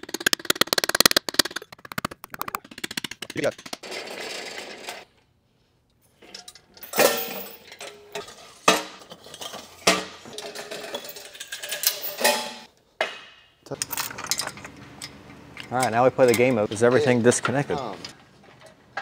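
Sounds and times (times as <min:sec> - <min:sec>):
metal hoist clanking and rattling: 0:06.2 - 0:12.7, 0:13.6 - 0:18.8.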